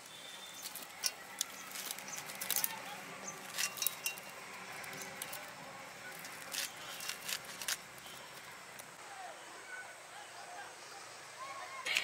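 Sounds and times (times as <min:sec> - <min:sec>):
knife slicing leaves: 0:00.5 - 0:08.9
glass bangles clinking: 0:00.6 - 0:08.2.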